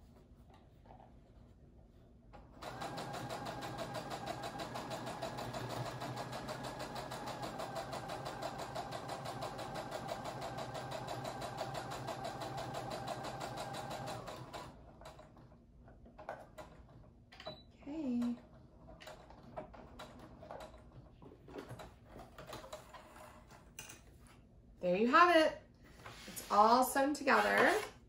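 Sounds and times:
electric sewing machine stitching: 2.6 - 14.8.

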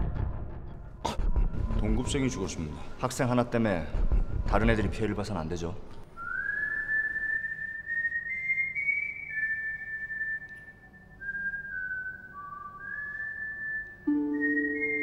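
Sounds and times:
whistled melody: 6.2 - 15.0
low held instrumental notes: 14.1 - 15.0.

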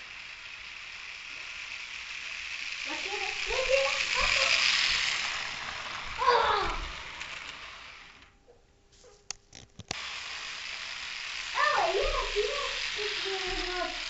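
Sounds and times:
model train rattling past: 0.0 - 8.3, 10.0 - 14.0
sharp clicks: 9.3 - 10.0.

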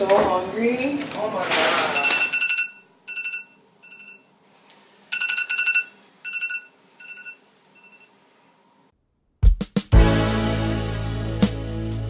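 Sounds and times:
phone alarm beeping: 1.9 - 4.3, 5.1 - 8.2.

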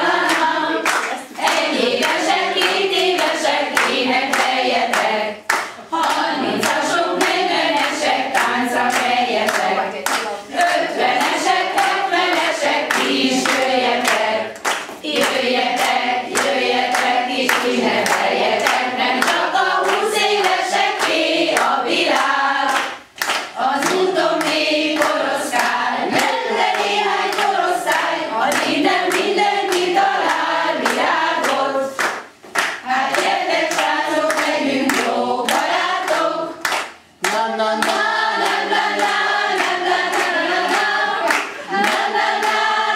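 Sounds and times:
group of women singing: 0.0 - 42.9
hand clapping: 0.0 - 42.9.

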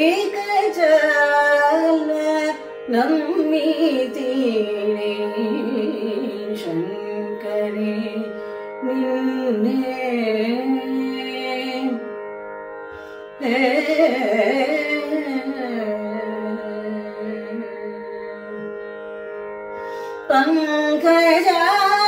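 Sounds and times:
woman singing: 0.0 - 12.1, 13.4 - 18.8, 20.2 - 22.0.

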